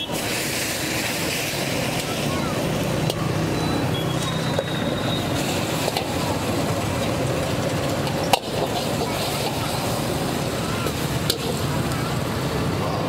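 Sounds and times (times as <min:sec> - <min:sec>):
sauce bubbling and sizzling in wok: 0:00.0 - 0:03.6, 0:04.4 - 0:12.2
steady rushing noise: 0:00.0 - 0:04.3, 0:05.1 - 0:13.0
metal ladle scraping wok: 0:08.3 - 0:11.6.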